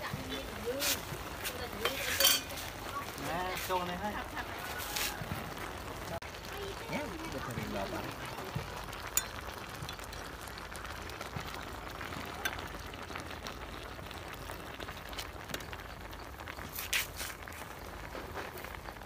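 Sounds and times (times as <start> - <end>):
soup bubbling: 0.0 - 19.0
metal ladle clattering on pot: 1.8 - 2.6.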